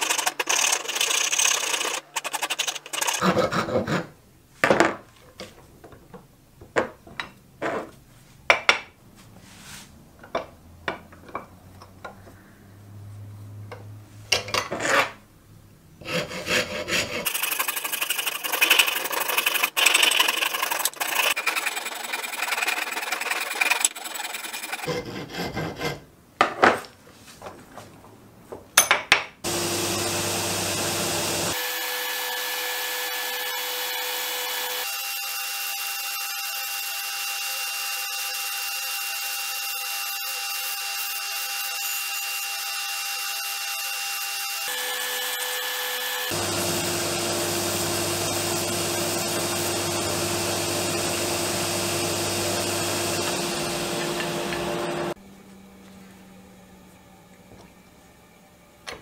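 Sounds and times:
belt grinder running: 0.0 - 3.2, 17.1 - 24.9, 29.5 - 31.9, 44.6 - 55.2
rasp scraping wood: 0.0 - 4.1, 16.0 - 26.1.

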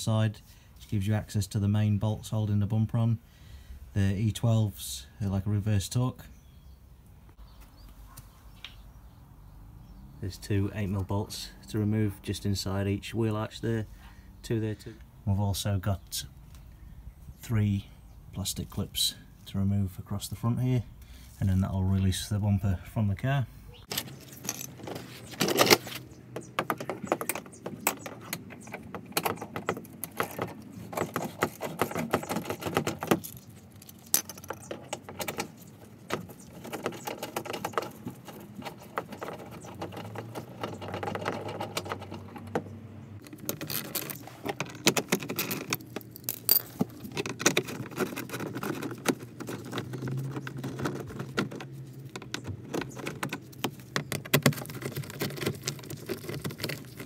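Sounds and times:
handling plastic bumper: 23.9 - 57.0
metallic rattling of tools: 23.9 - 57.0.

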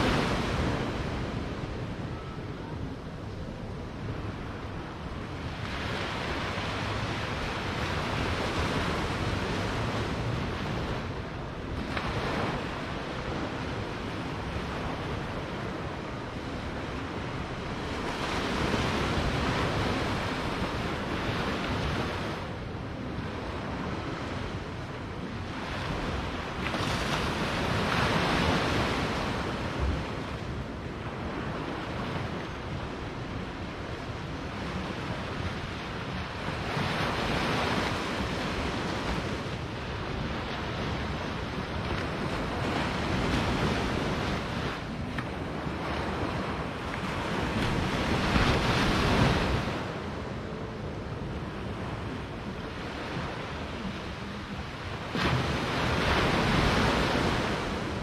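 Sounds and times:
small waves breaking on beach: 25.4 - 58.0.

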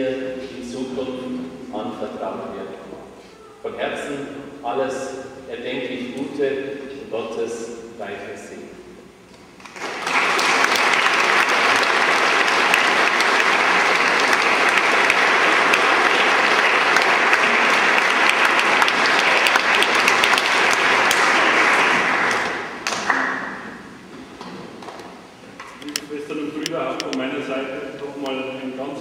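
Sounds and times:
congregation applauding: 9.6 - 23.8.

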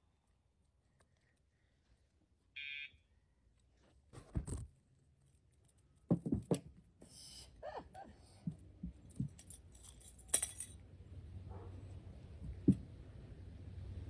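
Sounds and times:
dog hopping thumps and knocks: 6.1 - 6.8.

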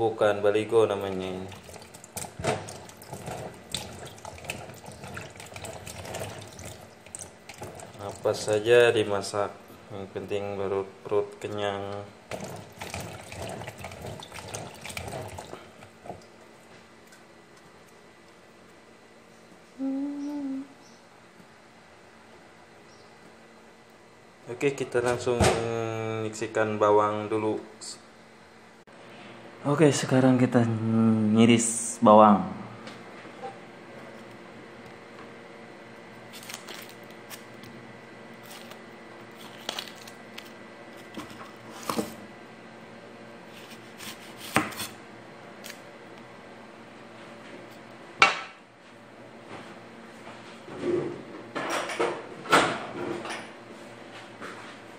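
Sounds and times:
tap water splashing in sink: 1.5 - 8.4, 12.3 - 16.3
knife slicing on cutting board: 43.5 - 45.0.

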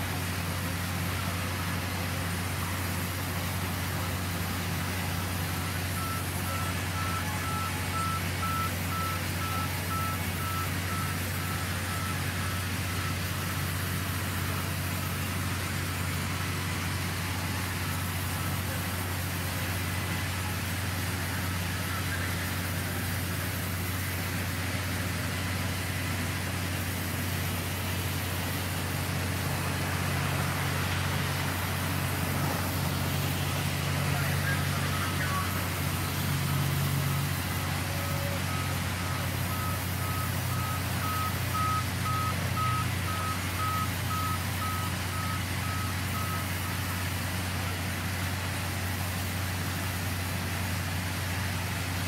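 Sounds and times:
faint high beep: 5.8 - 15.3, 34.0 - 46.8.

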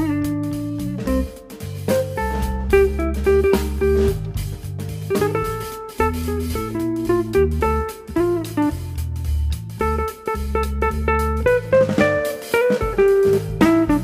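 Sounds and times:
bass line: 0.0 - 14.0
plucked guitar melody: 0.0 - 14.0.

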